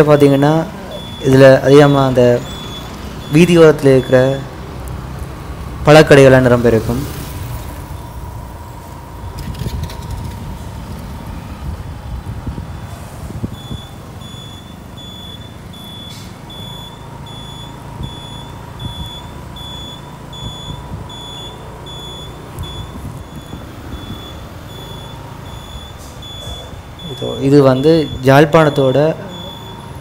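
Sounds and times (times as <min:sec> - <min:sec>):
low rumble of street traffic: 0:00.0 - 0:30.0
short high electronic beeps: 0:13.6 - 0:30.0.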